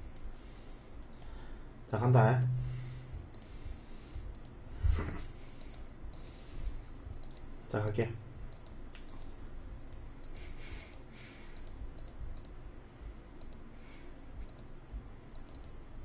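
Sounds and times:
faint light clicks: 0.1s - 1.4s, 3.3s - 3.6s, 4.3s - 4.6s, 5.6s - 6.4s, 7.1s - 12.6s, 13.4s - 13.7s, 14.4s - 14.7s, 15.3s - 15.8s.

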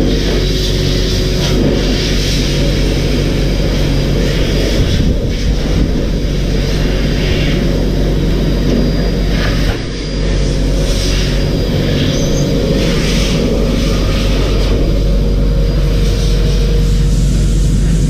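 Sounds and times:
air blower motor hum: 0.0s - 18.0s
air rushing: 0.0s - 18.0s.

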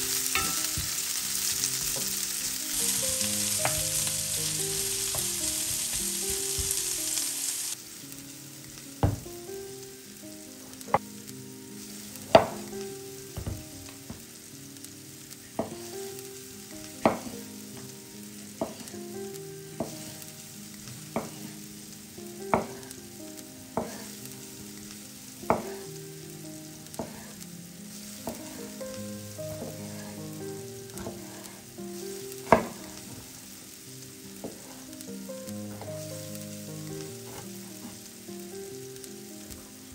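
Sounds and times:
food sizzling in a pan: 0.0s - 39.9s
utensil knocking against pan: 0.4s - 1.0s.

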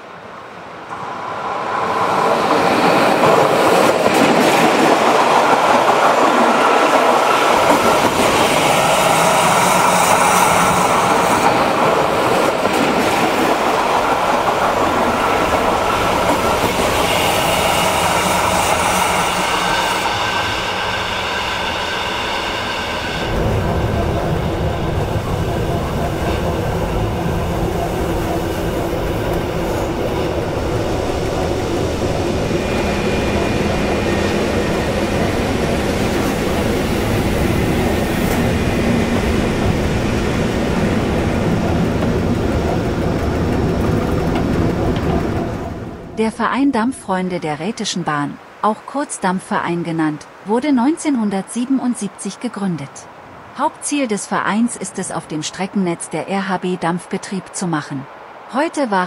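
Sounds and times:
train wheels clattering on rails: 0.9s - 46.2s.

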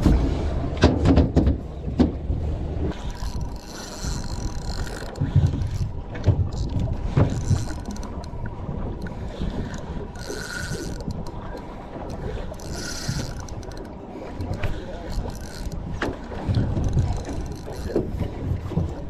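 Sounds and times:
wind buffeting microphone: 0.0s - 19.0s
knocks from handling reel and rod: 3.0s - 8.3s, 9.6s - 19.0s.

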